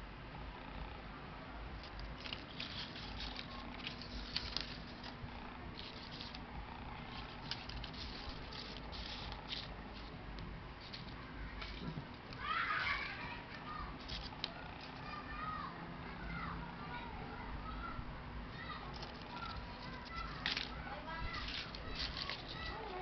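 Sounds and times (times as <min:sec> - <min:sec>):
paper rustling and crackling: 0:01.8 - 0:05.2, 0:05.8 - 0:10.2, 0:10.8 - 0:15.2, 0:18.8 - 0:23.0.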